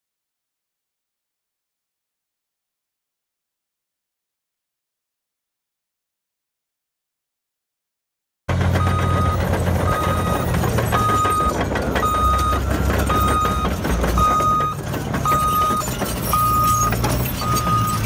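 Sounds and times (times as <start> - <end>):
diesel engine rumble: 8.5 - 18.0
back-up alarm beeping: 8.8 - 18.0.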